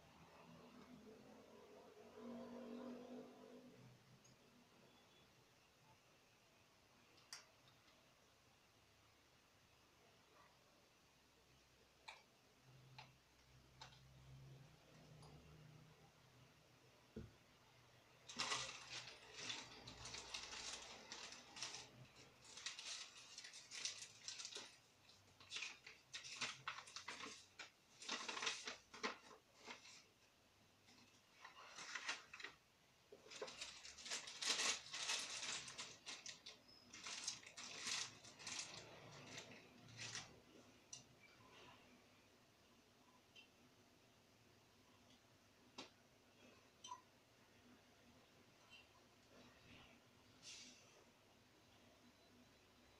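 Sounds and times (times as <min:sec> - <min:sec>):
plastic bag crinkling: 0:18.2 - 0:30.1, 0:31.1 - 0:40.4
paper rustling: 0:18.3 - 0:30.2, 0:31.0 - 0:32.6, 0:33.2 - 0:40.4.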